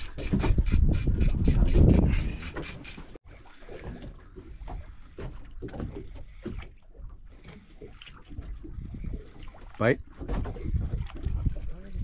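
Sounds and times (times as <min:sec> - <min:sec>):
water sloshing against boat hull: 0:00.0 - 0:12.0
faint splashes: 0:03.2 - 0:12.0.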